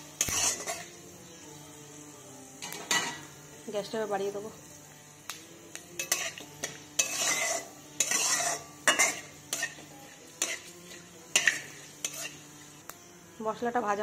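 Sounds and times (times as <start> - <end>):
metal spatula scraping a pan: 0.0 - 1.0, 6.0 - 12.8
spices sizzling in oil: 0.0 - 14.0.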